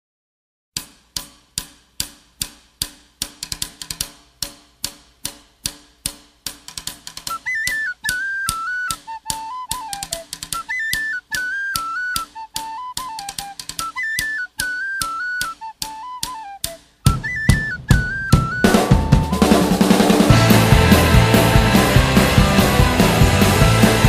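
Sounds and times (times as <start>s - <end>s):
high whistle melody: 7.3s - 24.0s
drum beat: 17.1s - 24.0s.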